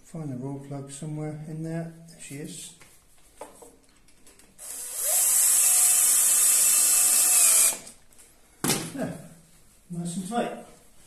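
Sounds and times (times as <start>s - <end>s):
cordless drill driving screw: 4.6s - 8.0s.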